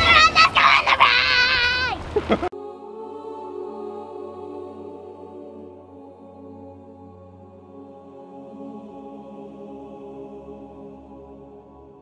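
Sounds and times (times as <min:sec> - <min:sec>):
ambient music with held chords: 0:02.5 - 0:12.0
low steady drone: 0:02.6 - 0:12.0.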